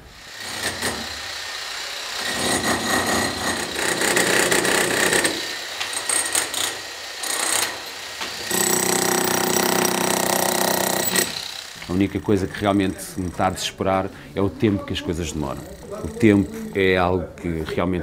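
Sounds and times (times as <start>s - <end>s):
demolition hammer on concrete: 0.4s - 1.2s, 2.2s - 13.7s.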